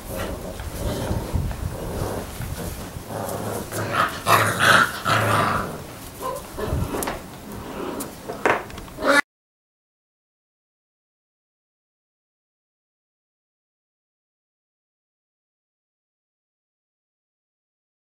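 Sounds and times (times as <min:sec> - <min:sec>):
puppies growling: 0:00.0 - 0:09.2.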